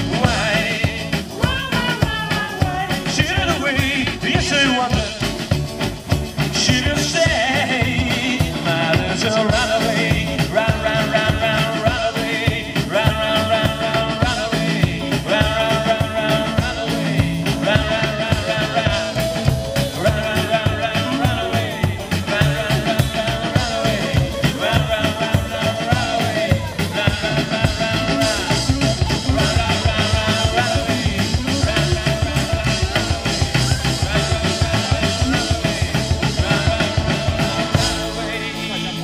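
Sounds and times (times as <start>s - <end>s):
acoustic guitar: 0.0s - 39.0s
electric guitar: 0.0s - 39.0s
rockabilly band playing live: 0.0s - 39.0s
upright double bass: 0.0s - 39.0s.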